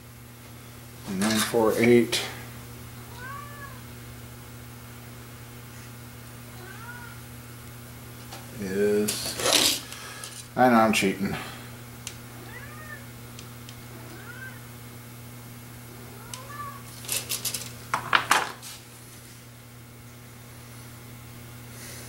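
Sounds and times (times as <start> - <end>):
cat meowing softly: 3.1 - 3.9, 6.5 - 7.2, 12.4 - 13.0, 13.9 - 14.7, 16.0 - 16.9
small parts clicking and clinking: 17.0 - 18.2.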